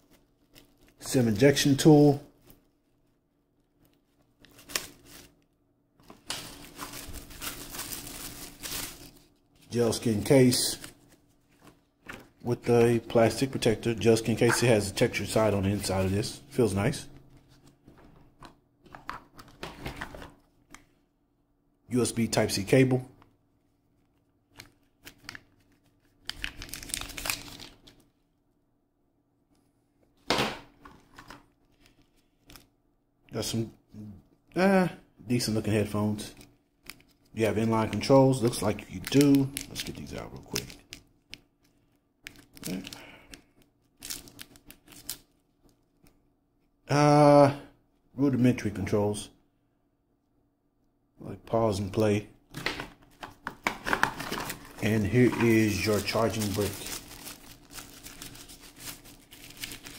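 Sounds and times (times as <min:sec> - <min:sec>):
plastic packaging crinkling: 0:00.0 - 0:01.2, 0:01.8 - 0:12.0, 0:24.6 - 0:28.1, 0:36.3 - 0:46.1, 0:52.6 - 0:59.9.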